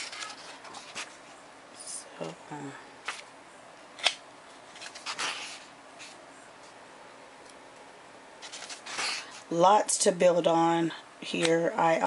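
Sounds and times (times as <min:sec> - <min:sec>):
paper rustling: 0:00.0 - 0:01.4, 0:04.0 - 0:06.8, 0:08.4 - 0:09.5.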